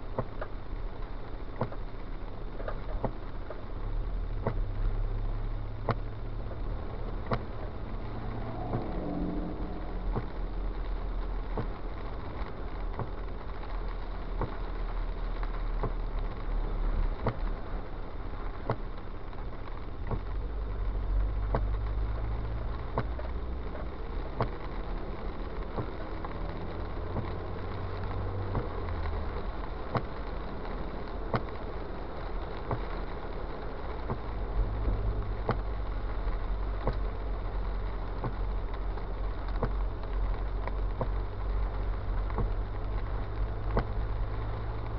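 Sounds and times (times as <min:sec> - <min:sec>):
car engine and tyres rumbling: 0:00.0 - 0:44.9
wet road hiss: 0:00.0 - 0:44.9
light ticks: 0:00.1 - 0:03.6, 0:04.2 - 0:44.9.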